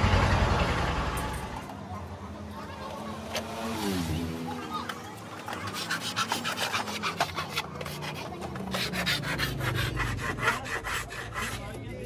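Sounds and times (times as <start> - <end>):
hand file rasping plastic: 5.4 - 12.0.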